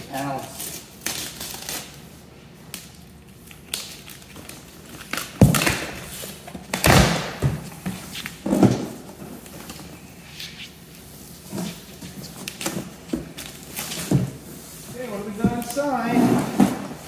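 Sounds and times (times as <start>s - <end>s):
packing tape ripping: 0.1s - 2.0s, 2.7s - 7.4s.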